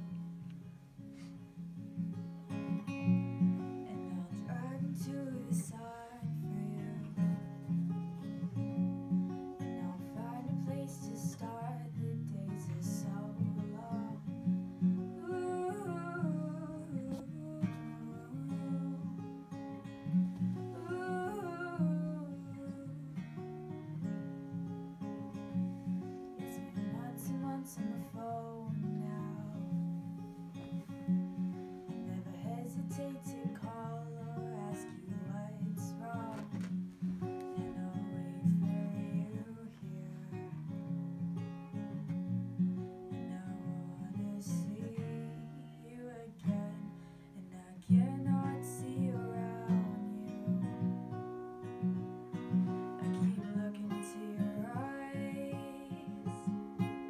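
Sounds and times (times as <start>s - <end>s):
acoustic guitar strumming: 0.0s - 57.0s
person singing: 3.8s - 7.5s, 9.7s - 14.5s, 15.2s - 19.5s, 20.7s - 23.3s, 26.4s - 30.0s, 32.0s - 36.7s, 43.2s - 50.9s, 53.0s - 56.6s.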